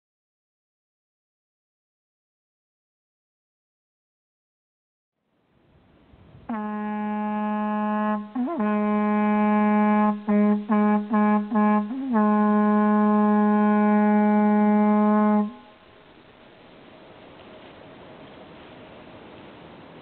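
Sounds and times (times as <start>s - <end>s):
hunting horn blasts: 6.5s - 15.8s.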